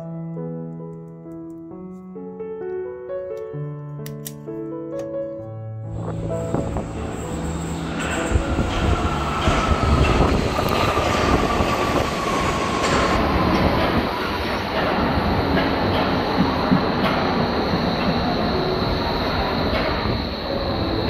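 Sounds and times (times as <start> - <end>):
vehicle rumble and rushing: 5.9 - 16.6.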